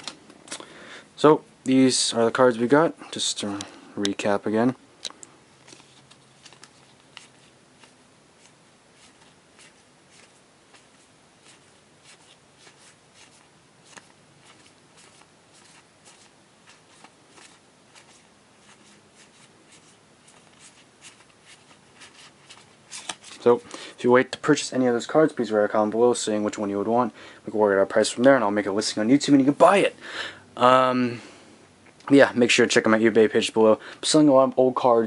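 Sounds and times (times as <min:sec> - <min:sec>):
trading cards rustling: 0:05.6 - 0:24.4.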